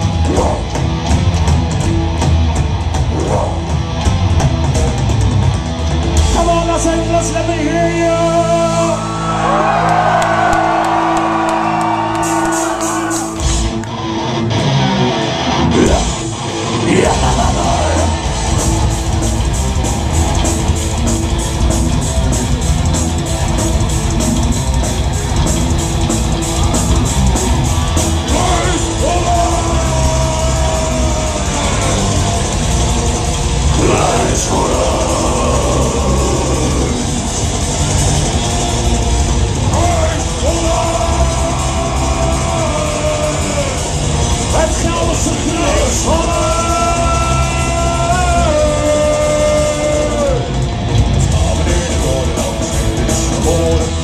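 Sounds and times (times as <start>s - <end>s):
distorted guitars: 0.0s - 54.0s
guitar chords: 10.3s - 54.0s
fast drum beat: 16.9s - 54.0s
sung and shouted vocals: 28.2s - 32.8s, 33.6s - 37.5s, 39.7s - 50.6s.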